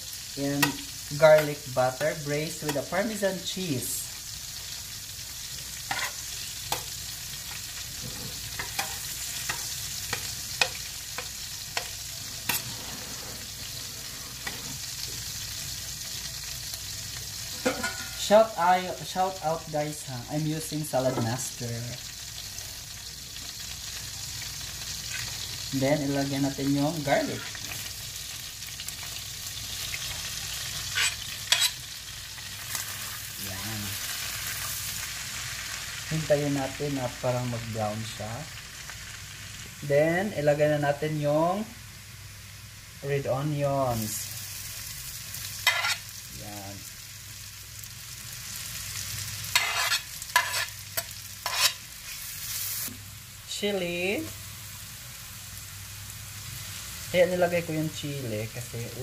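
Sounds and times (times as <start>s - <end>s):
butter sizzling in a pan: 0.0s - 59.0s
metal utensil scraping a pan: 0.4s - 3.3s, 5.7s - 7.0s, 7.6s - 15.2s, 17.5s - 18.3s, 30.0s - 31.9s, 45.6s - 46.1s, 49.5s - 52.6s.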